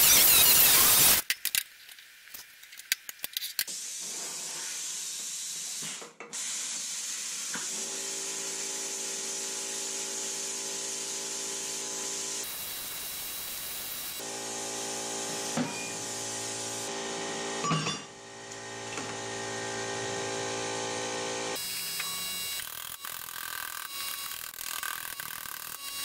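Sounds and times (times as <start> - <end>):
plasma cutter hissing: 0.0 - 1.2, 3.7 - 14.2.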